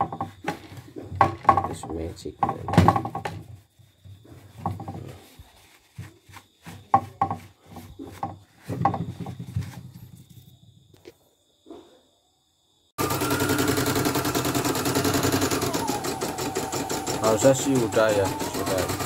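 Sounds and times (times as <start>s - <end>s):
plastic panel knocking: 0.0s - 3.4s, 4.6s - 5.1s, 6.8s - 9.9s
tissue rubbing plastic panel: 2.9s - 10.0s.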